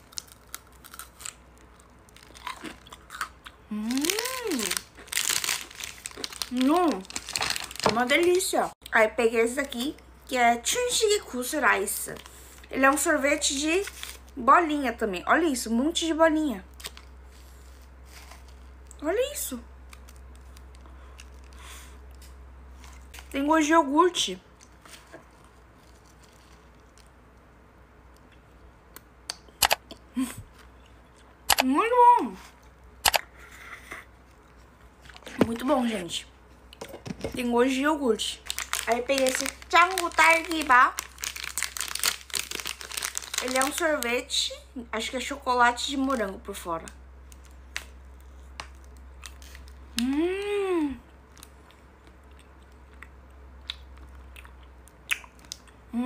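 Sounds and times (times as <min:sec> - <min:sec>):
crunchy ice cream bar bites: 0:00.0 - 0:08.4, 0:38.4 - 0:44.1
person humming mmm: 0:03.6 - 0:04.8, 0:50.0 - 0:51.1
sharp clicks: 0:29.3 - 0:29.8, 0:31.5 - 0:31.7
mouth eating noises: 0:49.9 - 0:56.0.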